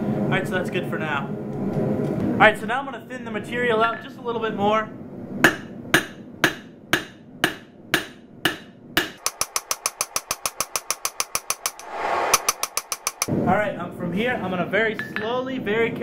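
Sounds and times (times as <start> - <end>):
hammer striking steel on anvil: 5.4 - 13.3.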